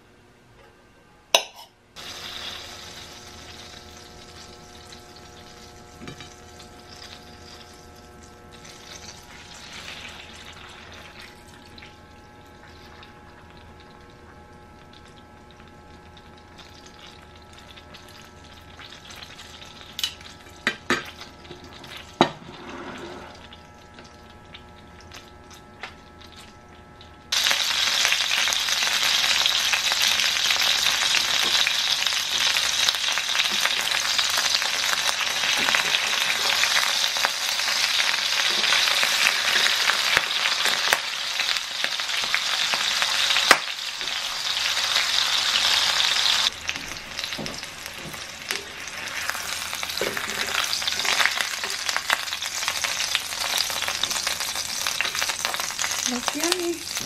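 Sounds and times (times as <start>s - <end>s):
chicken sizzling in oil: 2.0s - 57.0s.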